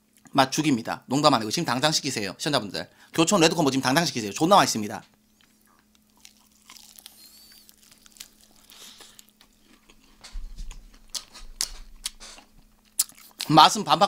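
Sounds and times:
crunching fried chicken: 5.4s - 13.5s.

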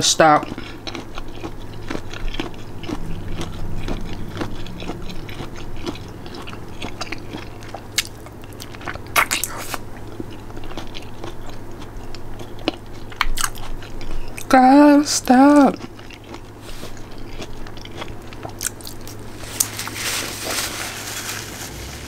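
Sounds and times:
steady low hum: 0.0s - 22.0s
person chewing food: 0.4s - 21.2s
crisp crunching: 0.6s - 11.6s, 15.8s - 22.0s.

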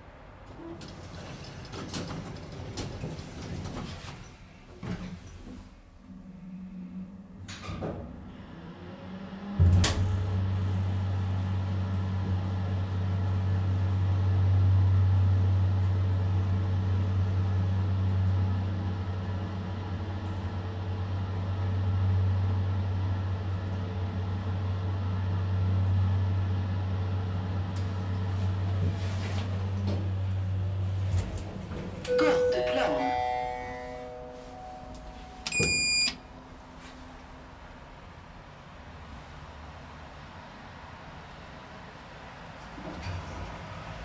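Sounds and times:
elevator pump clunk: 35.0s - 36.1s.

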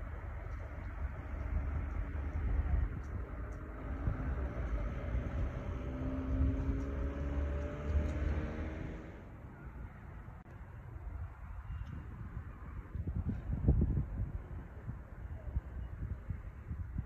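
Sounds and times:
motor vehicle passing: 0.0s - 9.4s.

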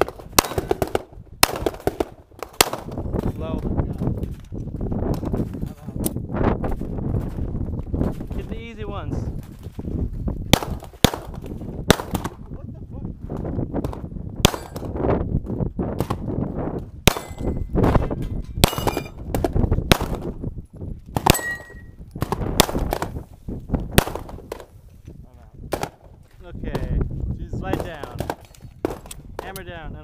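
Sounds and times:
pistol shots: 0.0s - 3.0s, 10.5s - 12.4s, 14.4s - 14.9s, 17.0s - 17.7s, 18.6s - 20.3s, 21.2s - 23.2s, 24.0s - 24.6s, 25.7s - 26.1s, 27.7s - 29.5s
metallic clang of steel plates: 21.3s - 21.9s.

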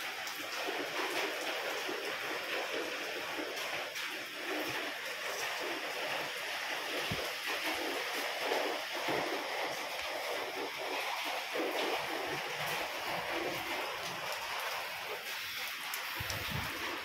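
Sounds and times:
steady rushing noise: 6.9s - 17.0s.

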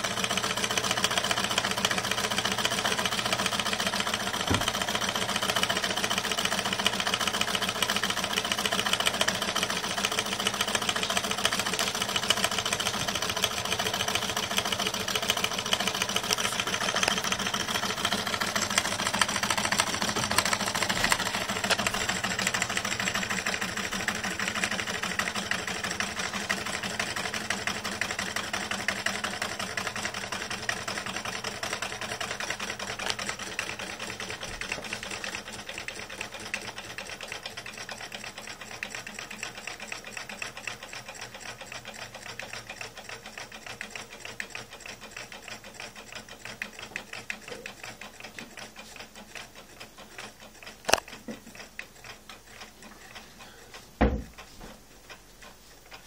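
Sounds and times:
stirling engine ticking clatter: 0.0s - 34.4s.

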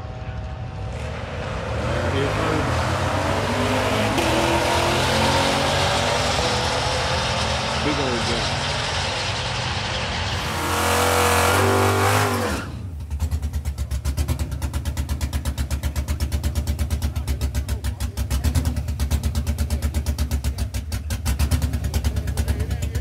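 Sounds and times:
car engine idling with choppy lope: 0.0s - 1.5s, 2.1s - 23.0s
race car engine at full throttle: 0.0s - 23.0s.

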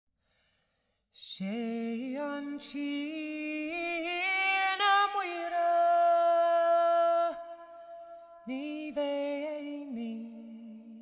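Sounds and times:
short breath: 0.2s - 1.1s, 7.6s - 8.3s
woman singing unaccompanied: 1.2s - 7.6s, 8.2s - 11.0s.

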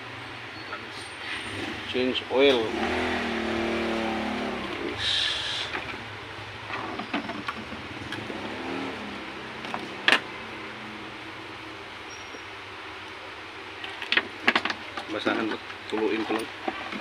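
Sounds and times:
steady background noise: 0.0s - 17.0s
plastic and metal clicks and knocks: 13.8s - 17.0s.

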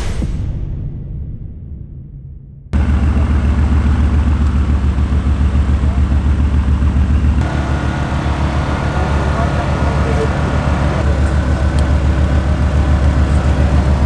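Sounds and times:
car engine idling: 2.8s - 14.0s.

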